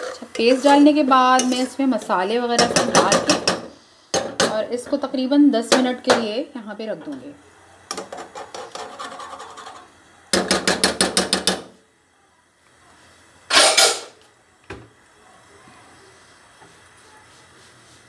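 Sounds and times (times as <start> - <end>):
metal spoon knocking in pot: 2.6 - 4.6, 10.4 - 11.7.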